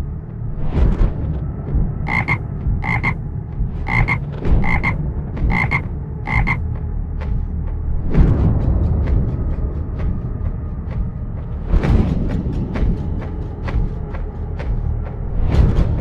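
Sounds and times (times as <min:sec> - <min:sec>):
pulsed croaking calls: 0:02.0 - 0:03.2, 0:03.8 - 0:06.6.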